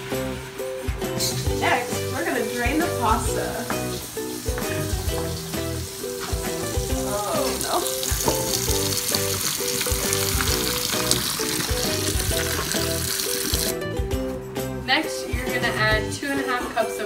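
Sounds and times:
background music with a beat: 0:00.0 - 0:17.0
water pouring into a metal colander: 0:05.1 - 0:13.8.

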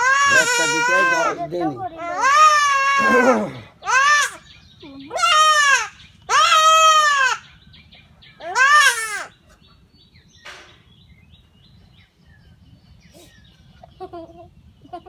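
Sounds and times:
goat kid bleating loudly: 0:00.0 - 0:04.4, 0:05.1 - 0:07.4, 0:08.4 - 0:09.3.

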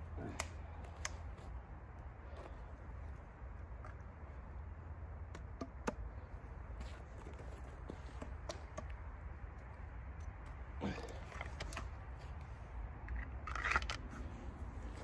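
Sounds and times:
twigs cracking and snapping: 0:00.0 - 0:01.5.

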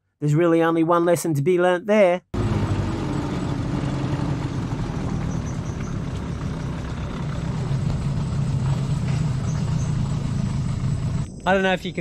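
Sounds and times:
small outboard motor running: 0:02.4 - 0:11.3.

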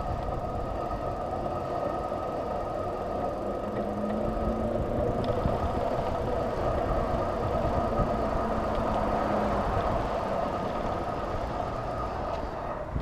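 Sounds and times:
bike hum: 0:00.0 - 0:13.0
road vibration rumble: 0:00.0 - 0:13.0
wind: 0:00.0 - 0:13.0.

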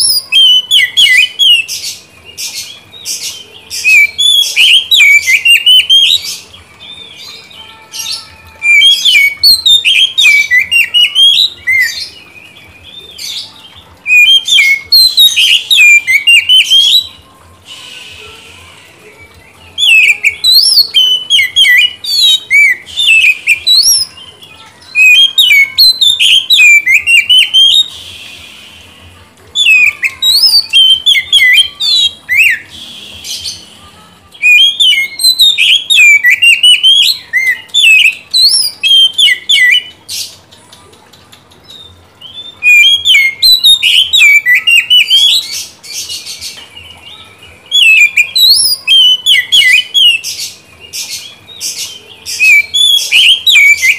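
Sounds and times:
bird singing whistled trills: 0:00.0 - 0:33.8, 0:34.4 - 0:40.4, 0:41.6 - 0:53.9.

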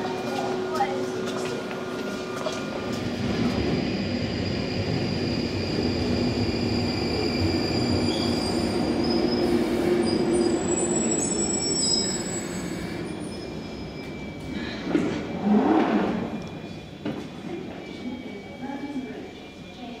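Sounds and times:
train wheels rumbling on rail: 0:00.0 - 0:18.3
high brake squeals: 0:04.7 - 0:17.0.

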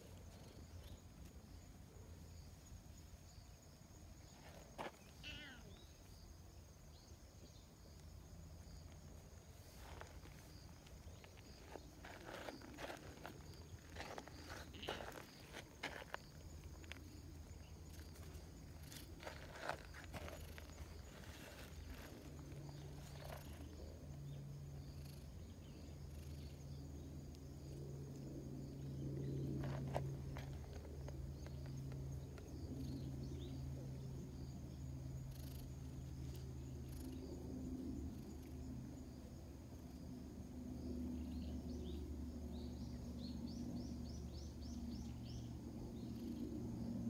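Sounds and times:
insect trilling: 0:04.2 - 0:08.0, 0:09.6 - 0:27.8, 0:35.1 - 0:37.3
soft rustle: 0:09.4 - 0:16.2.

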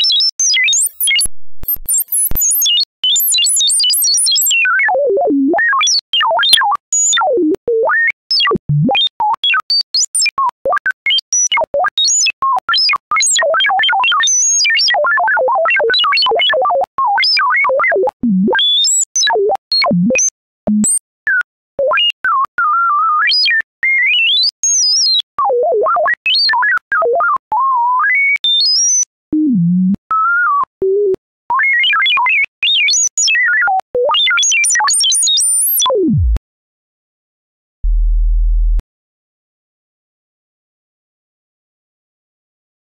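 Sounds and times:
synthesized tone chirping and warbling: 0:35.8 - 0:36.4.

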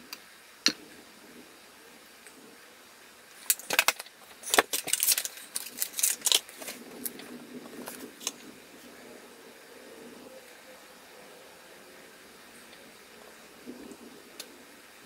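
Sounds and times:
small hard objects clattering: 0:03.4 - 0:08.5.

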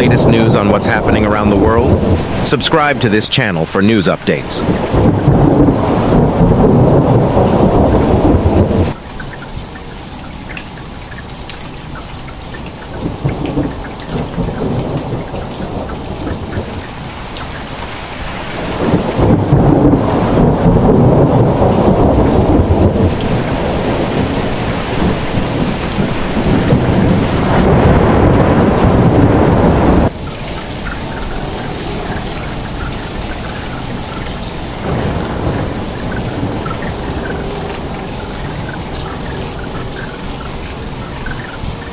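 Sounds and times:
heavy rain pouring: 0:00.0 - 0:41.9
deep low rumble: 0:18.8 - 0:41.9.

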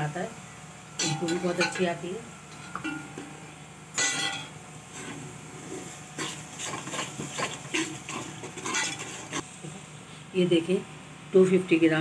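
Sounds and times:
masala frying in oil: 0:00.0 - 0:12.0
metal spoon scraping metal pot: 0:04.0 - 0:05.2, 0:06.2 - 0:09.4.

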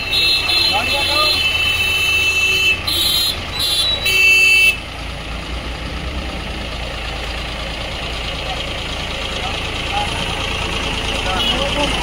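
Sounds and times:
horn blasts: 0:00.0 - 0:04.8
tractor engine throbbing: 0:00.0 - 0:12.0.

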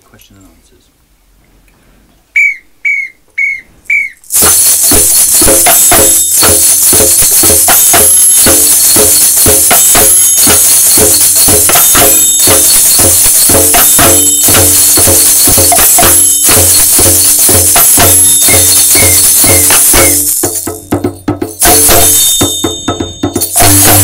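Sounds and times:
short whistle blasts: 0:02.4 - 0:20.4
samba drums and tambourine: 0:04.2 - 0:24.0.

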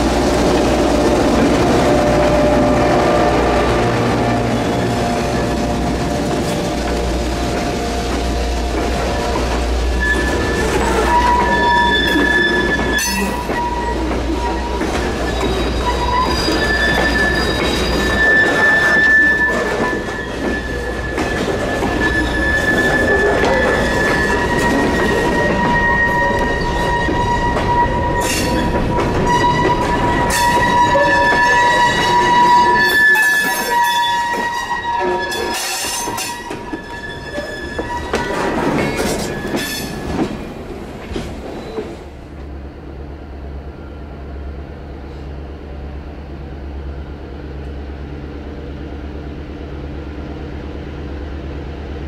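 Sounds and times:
diesel locomotive engine rumble: 0:00.0 - 0:52.0
rail joint clicks: 0:04.8 - 0:42.6
high wheel squeal: 0:09.9 - 0:40.2.

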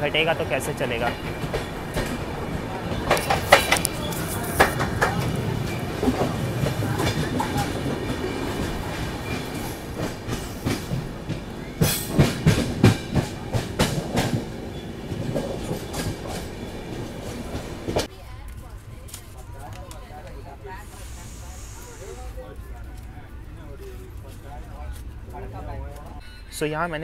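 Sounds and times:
train wheels clattering over rails: 0:00.0 - 0:18.1
passing train: 0:00.0 - 0:26.7.

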